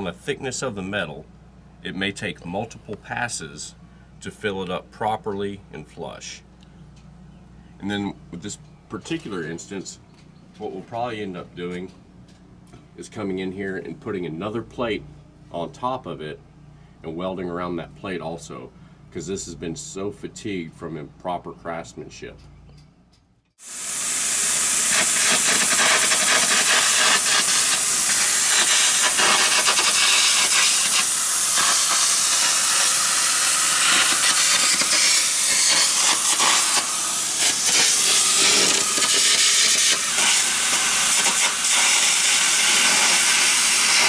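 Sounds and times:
compressed air hissing: 0:23.6 - 0:44.0
electric arc crackling: 0:23.6 - 0:44.0.

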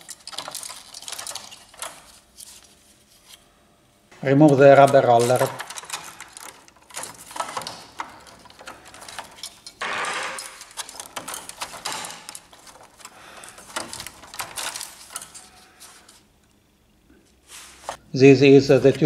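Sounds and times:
scraping rub: 0:17.3 - 0:18.0.

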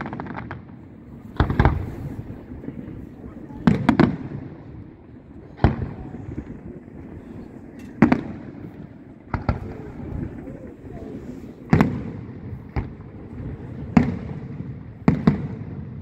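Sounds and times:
firework shells bursting: 0:01.3 - 0:02.6, 0:03.6 - 0:10.4.

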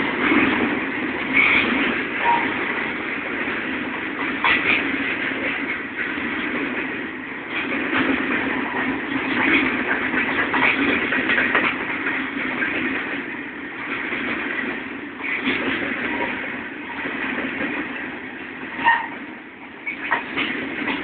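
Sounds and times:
train cars clanking: 0:00.0 - 0:21.0
train wheels rumbling on rails: 0:00.0 - 0:21.0.

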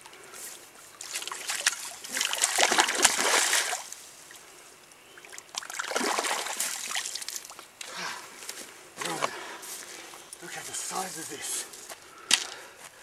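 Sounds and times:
fish splashing in water: 0:01.0 - 0:03.9, 0:05.2 - 0:07.6.

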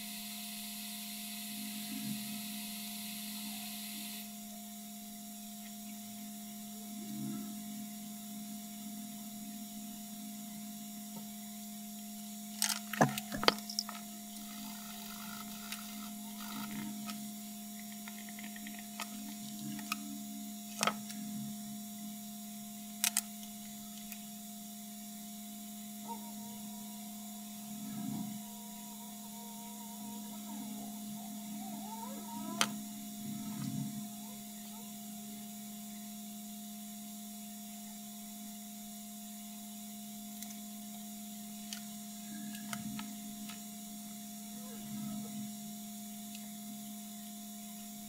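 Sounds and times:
electrical hum: 0:00.0 - 0:48.0
small tools clicking and tapping: 0:12.6 - 0:14.1, 0:17.8 - 0:20.0.

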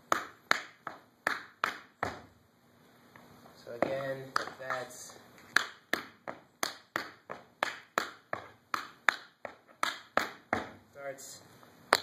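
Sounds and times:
tap shoes on wooden floor: 0:03.8 - 0:10.8.

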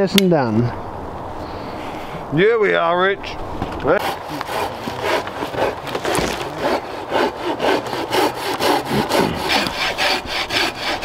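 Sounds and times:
hand saw cutting log: 0:03.9 - 0:11.0.

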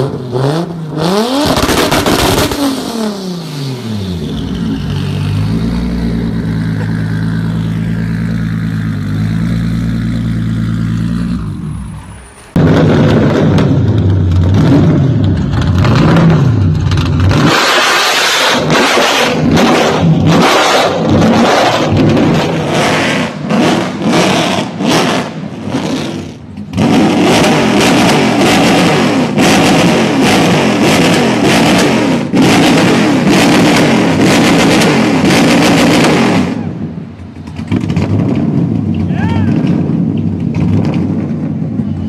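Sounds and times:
car engine revving: 0:00.0 - 0:41.5
exhaust backfire pops and bangs: 0:01.4 - 0:02.6, 0:12.5 - 0:42.0.

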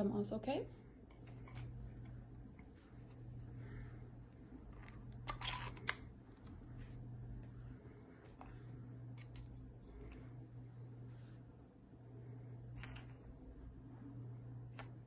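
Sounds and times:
faint low hum: 0:00.0 - 0:15.0
plastic parts clicking: 0:04.7 - 0:06.6.

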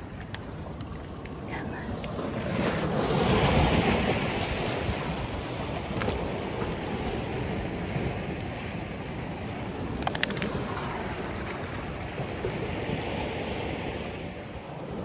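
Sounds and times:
waves washing on rocky shore: 0:00.0 - 0:15.0
sharp clicks: 0:10.0 - 0:10.6.

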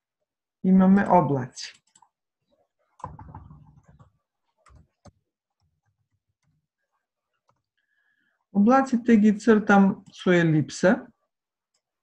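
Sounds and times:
computer keyboard clicking: 0:01.7 - 0:02.2, 0:03.0 - 0:06.6.

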